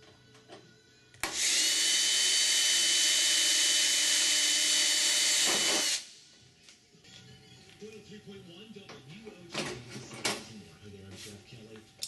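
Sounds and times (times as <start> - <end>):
cordless drill whining: 1.2 - 6.1.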